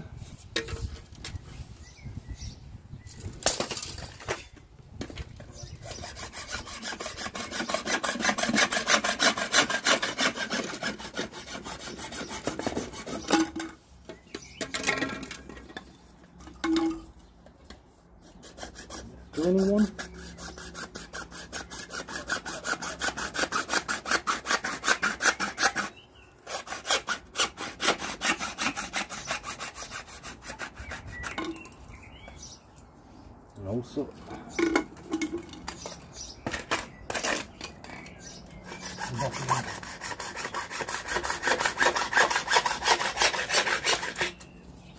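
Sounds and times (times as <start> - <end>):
hacksaw cutting plastic pipe: 5.8 - 13.7, 18.4 - 31.6, 38.7 - 44.5.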